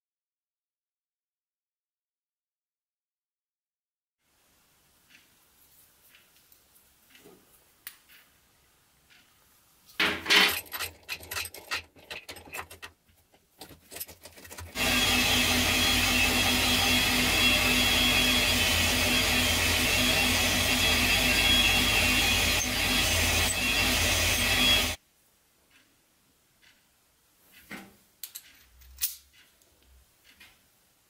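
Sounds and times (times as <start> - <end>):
metal parts clicking and knocking: 10.0 - 14.8, 27.5 - 29.6
metal lathe machining: 14.7 - 25.0.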